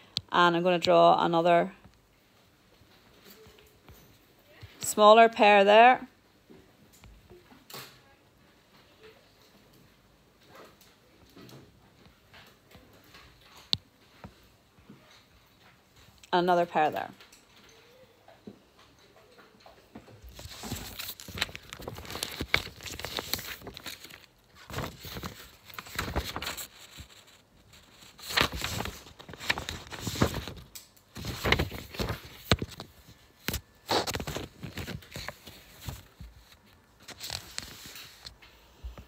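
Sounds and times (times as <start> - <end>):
rustling and crinkling: 17.0 - 39.0.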